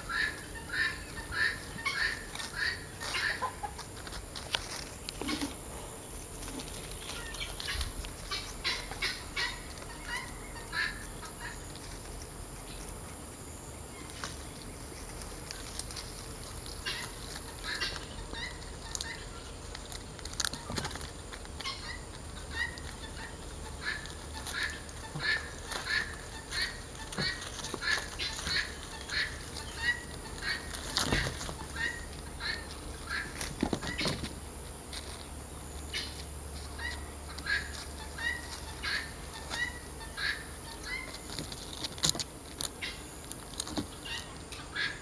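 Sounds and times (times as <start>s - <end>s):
chickens clucking: 0.0s - 45.0s.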